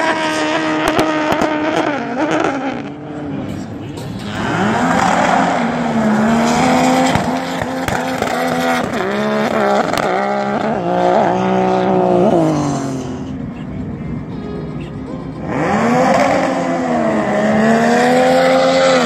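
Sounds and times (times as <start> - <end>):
jet ski engine at high revs: 0.0 - 3.1, 15.5 - 19.0.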